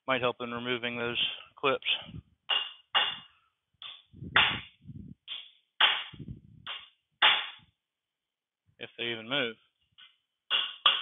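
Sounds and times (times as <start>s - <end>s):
hammer striking steel punch: 2.5s - 4.7s, 5.3s - 7.6s, 10.5s - 11.0s.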